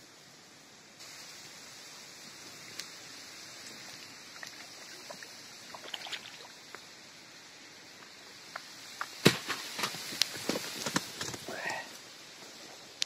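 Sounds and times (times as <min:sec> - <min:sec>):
faint steady hiss: 0:00.0 - 0:13.0
fish splashing at water surface: 0:04.4 - 0:06.7.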